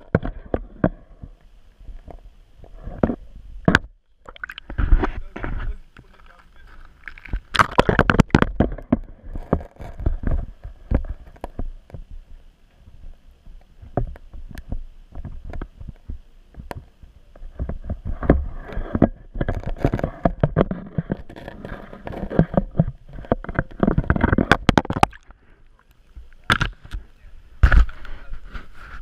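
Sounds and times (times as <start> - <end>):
water sloshing: 4.2 - 10.4, 20.8 - 27.0
scrapes: 4.6 - 11.8, 17.4 - 25.6, 26.2 - 29.0.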